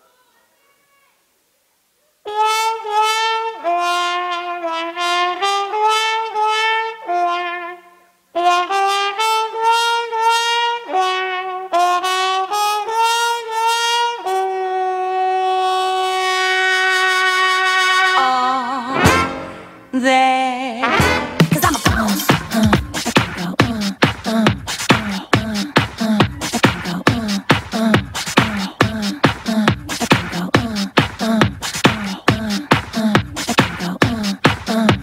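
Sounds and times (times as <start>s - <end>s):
trumpet playing bluesy melody: 2.2s - 19.9s, 20.7s - 31.0s.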